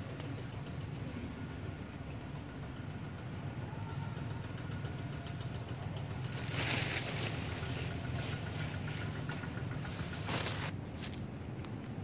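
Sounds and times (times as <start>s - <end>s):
rustling noise: 6.2s - 10.7s.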